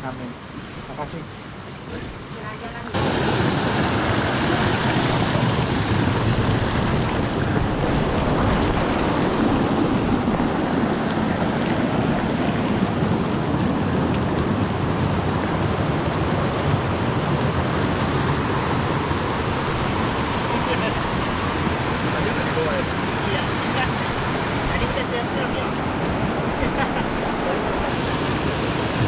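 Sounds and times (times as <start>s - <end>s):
wind rushing on microphone: 2.9s - 29.0s.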